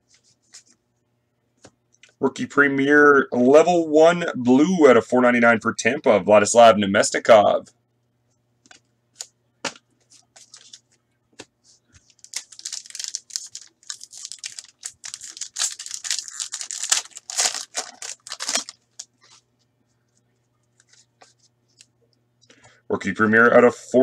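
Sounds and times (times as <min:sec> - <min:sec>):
foil wrapper tearing and crinkling: 0:12.2 - 0:19.1.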